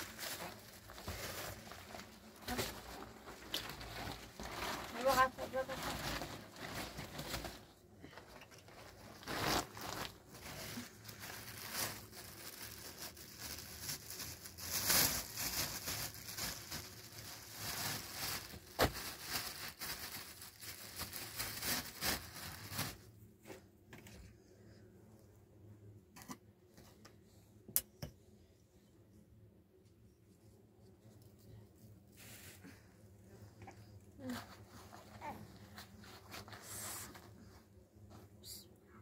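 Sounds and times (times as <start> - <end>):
cloth being spread out: 0.0 - 13.2, 32.0 - 32.9
plastic bag rustling: 0.0 - 23.2.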